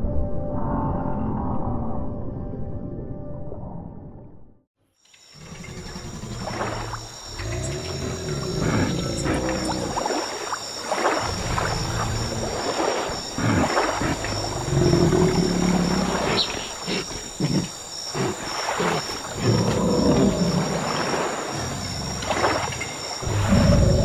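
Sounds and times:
water sloshing: 0:05.3 - 0:24.0
dinosaur moaning: 0:05.4 - 0:10.0, 0:13.4 - 0:24.0
rough grunting: 0:05.4 - 0:10.3, 0:11.2 - 0:24.0.

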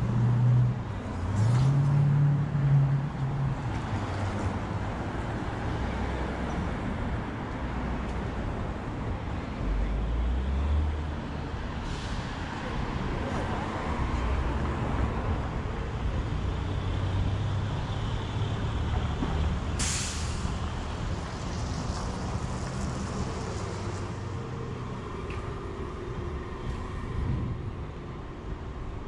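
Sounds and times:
traffic engine rumble: 0:00.0 - 0:29.0
short sharp hiss: 0:19.8 - 0:20.5.

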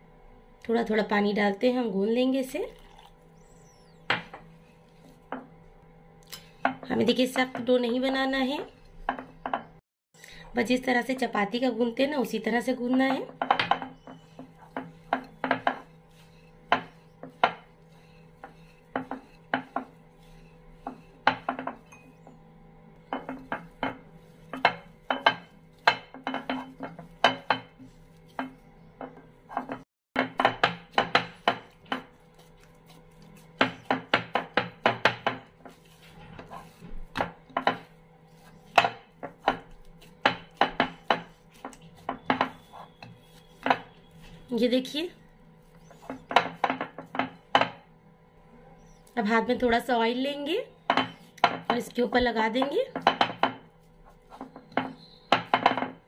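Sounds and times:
dough thudding in bowl: 0:23.1 - 0:45.0, 0:45.9 - 0:47.8, 0:50.9 - 0:51.9, 0:52.5 - 0:53.7, 0:54.3 - 0:56.0.

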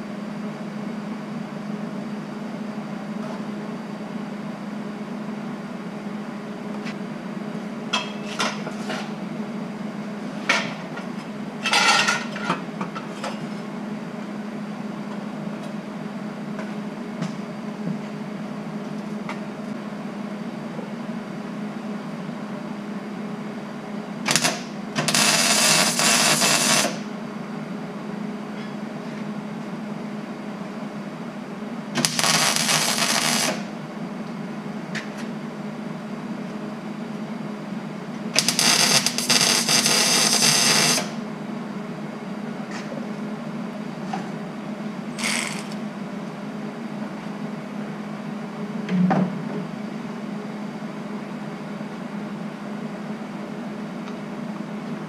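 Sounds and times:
welding arc crackling and buzzing: 0:24.2 - 0:27.1, 0:31.9 - 0:33.8, 0:38.3 - 0:41.2, 0:45.2 - 0:45.8.

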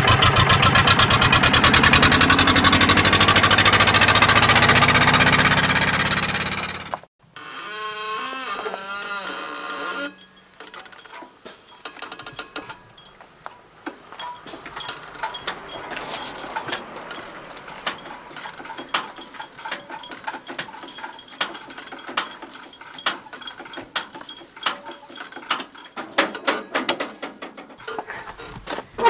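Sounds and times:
hand crank clicking and clanking: 0:08.2 - 0:29.0.

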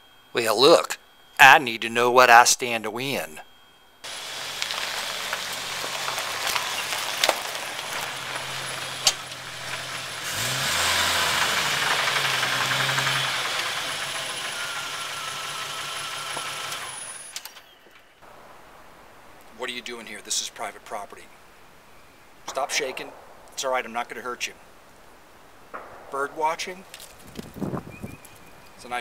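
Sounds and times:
vehicle engine running: 0:04.1 - 0:17.4
sharp knocks: 0:25.8 - 0:27.6.

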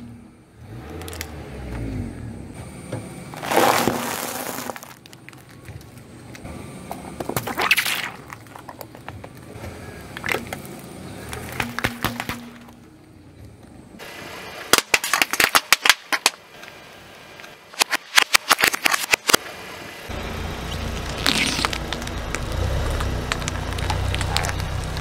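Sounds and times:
plastic cells cracking and popping: 0:03.4 - 0:06.5, 0:07.2 - 0:09.5, 0:14.7 - 0:16.4, 0:17.7 - 0:19.4, 0:20.7 - 0:25.0.

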